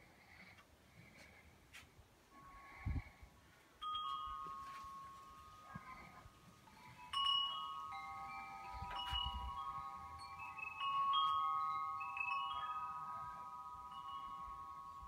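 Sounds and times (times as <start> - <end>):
wind chimes ringing: 3.8 - 15.0.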